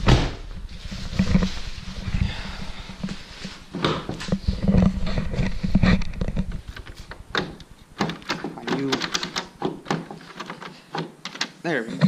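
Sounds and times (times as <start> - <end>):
hood catch clicks and knocks: 3.8 - 11.6.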